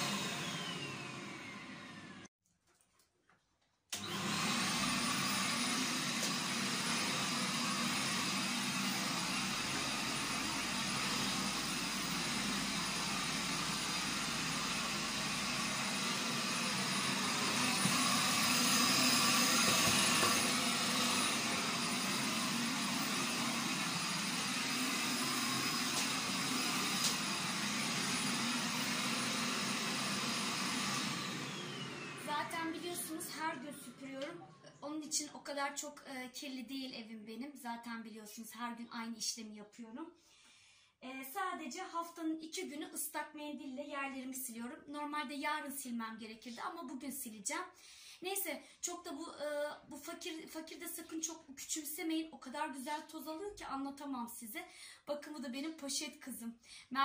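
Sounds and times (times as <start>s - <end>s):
vacuum cleaner running: 0.0s - 2.3s, 4.0s - 34.6s.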